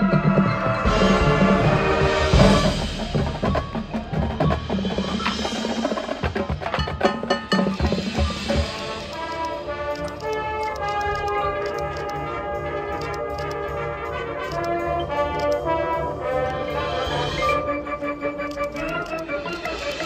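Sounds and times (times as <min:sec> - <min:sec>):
marching band percussion: 0:00.0 - 0:20.0
woodblock-like clicks: 0:08.5 - 0:12.2, 0:18.4 - 0:20.0.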